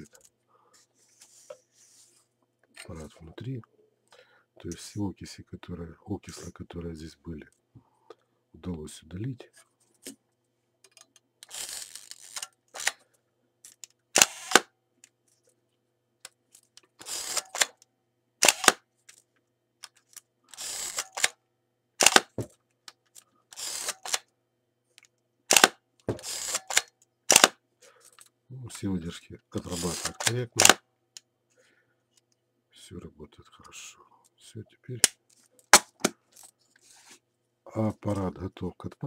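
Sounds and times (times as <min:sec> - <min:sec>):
camera film advance winding: 0:11.4 - 0:13.0, 0:14.2 - 0:14.6, 0:17.0 - 0:17.7, 0:18.4 - 0:18.8, 0:20.5 - 0:21.3, 0:23.6 - 0:24.2, 0:25.5 - 0:27.5
camera shutter clack: 0:14.2 - 0:14.7, 0:18.4 - 0:18.8, 0:22.0 - 0:22.3, 0:25.5 - 0:27.6, 0:29.8 - 0:30.8.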